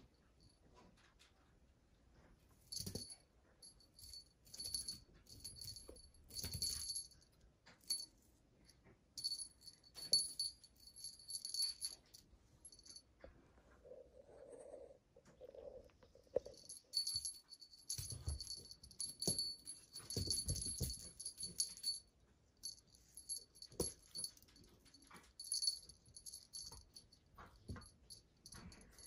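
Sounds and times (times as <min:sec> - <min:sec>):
cat toy jingling: 0:02.7 - 0:07.2, 0:09.2 - 0:13.0, 0:16.3 - 0:29.0.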